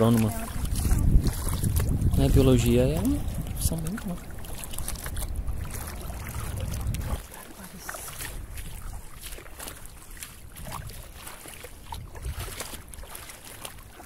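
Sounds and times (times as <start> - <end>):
footsteps splashing in shallow water: 0.0 - 14.0
wind rumbling on microphone: 0.0 - 14.0.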